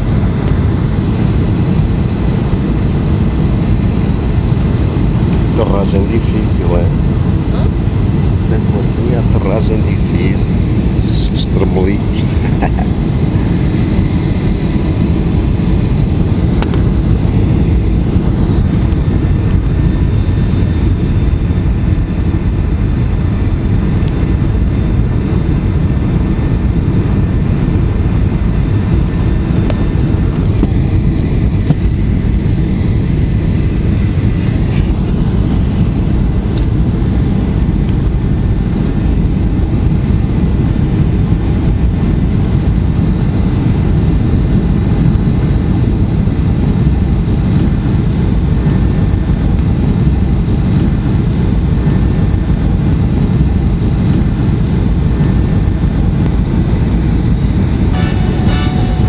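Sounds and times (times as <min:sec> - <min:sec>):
airliner cabin rumble: 0:00.0 - 0:59.0.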